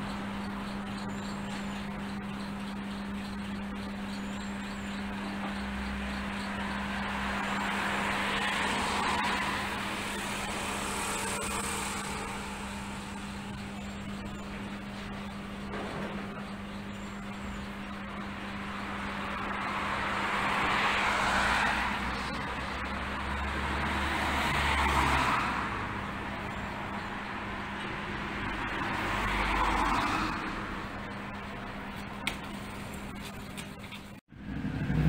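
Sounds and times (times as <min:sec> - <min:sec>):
steady low hum: 0:00.0 - 0:23.7
vehicles passing: 0:00.0 - 0:35.0.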